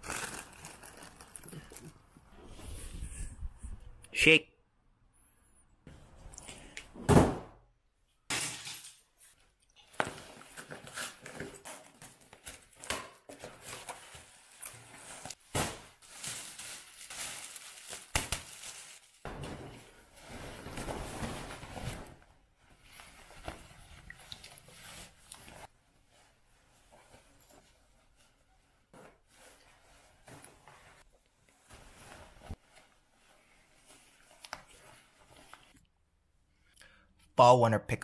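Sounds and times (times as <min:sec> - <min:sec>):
clothing and wrapping rustling: 0:00.0 - 0:03.4, 0:09.1 - 0:35.8.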